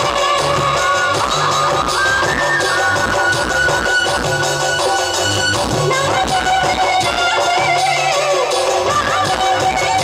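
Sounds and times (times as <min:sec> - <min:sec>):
folk music through loudspeakers: 0:00.0 - 0:10.0.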